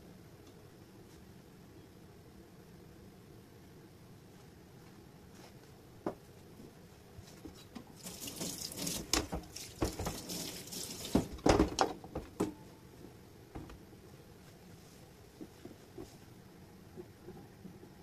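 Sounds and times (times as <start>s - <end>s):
tap water running: 7.8s - 11.8s.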